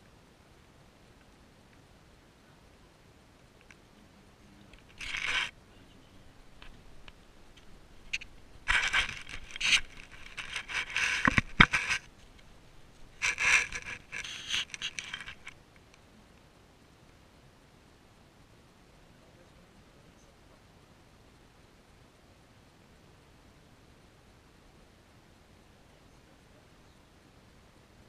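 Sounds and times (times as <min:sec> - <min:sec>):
camera scraping and rubbing: 0:04.7 - 0:05.6, 0:07.5 - 0:15.6.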